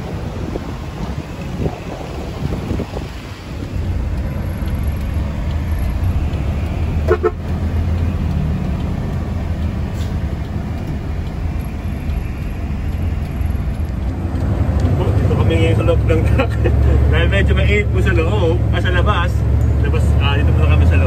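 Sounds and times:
truck engine running: 0:00.0 - 0:21.0
vehicle horn toot: 0:07.0 - 0:07.4.

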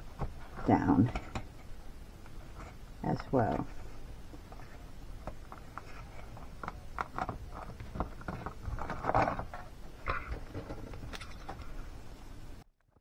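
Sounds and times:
paper rustling and scraping: 0:03.6 - 0:11.8.

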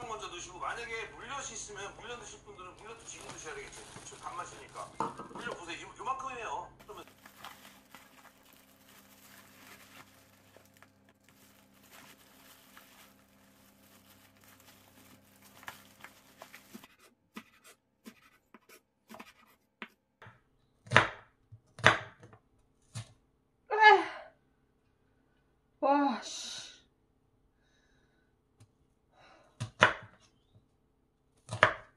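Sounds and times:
scratching and handling noise: 0:01.7 - 0:05.8, 0:06.8 - 0:19.7.

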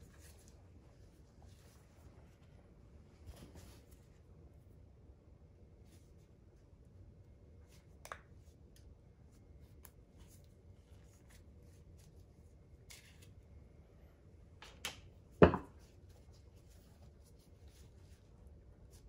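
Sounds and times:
faint steady hum: 0:00.0 - 0:19.0
sharp knocks on bench: 0:15.4 - 0:15.7.

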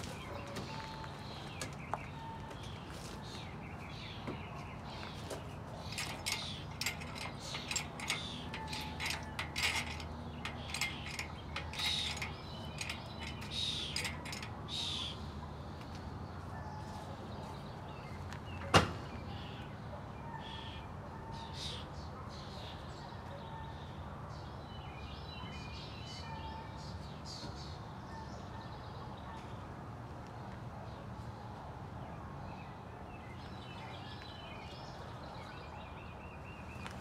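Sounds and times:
metal chain clicks and clinks: 0:05.7 - 0:15.0.

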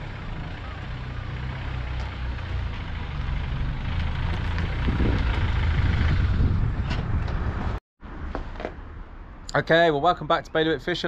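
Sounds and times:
wind buffeting microphone: 0:04.0 - 0:07.8.

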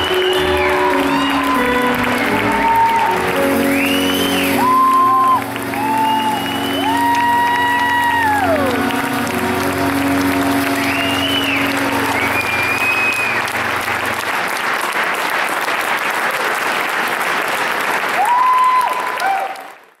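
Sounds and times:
whistles from audience: 0:00.0 - 0:01.7, 0:03.5 - 0:07.9, 0:10.8 - 0:13.6, 0:18.2 - 0:19.6
audience applauding: 0:00.0 - 0:20.0.

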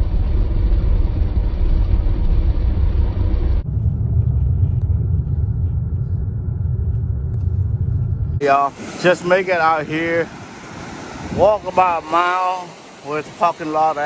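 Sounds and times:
loud low rumble: 0:00.0 - 0:10.3.

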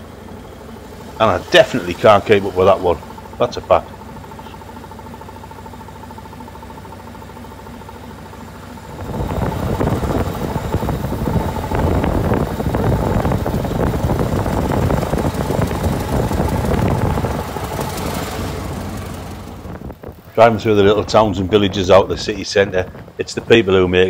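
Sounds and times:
old car engine running: 0:00.0 - 0:24.0
road and wind noise: 0:08.8 - 0:24.0.

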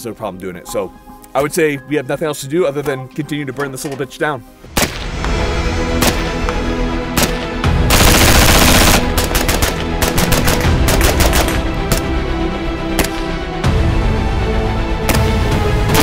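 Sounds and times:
background music: 0:00.0 - 0:16.0
automatic gunfire burst: 0:07.9 - 0:11.6.

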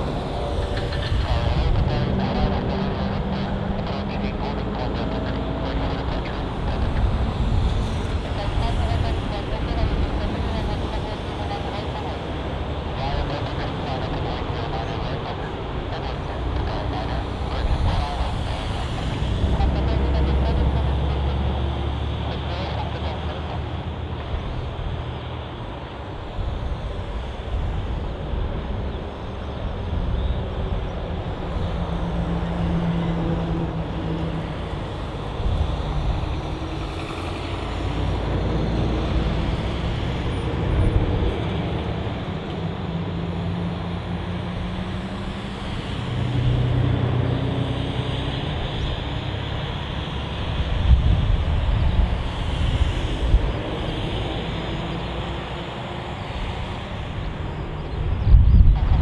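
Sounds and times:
vehicle engines rumbling: 0:00.0 - 0:59.0.

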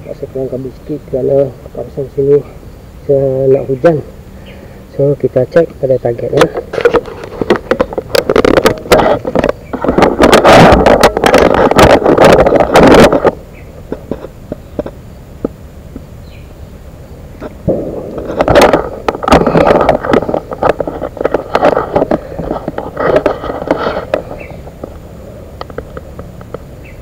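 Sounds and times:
footsteps on forest path: 0:06.3 - 0:15.1, 0:17.4 - 0:25.1
clothing rustling on microphone: 0:06.4 - 0:15.0, 0:17.4 - 0:25.1.

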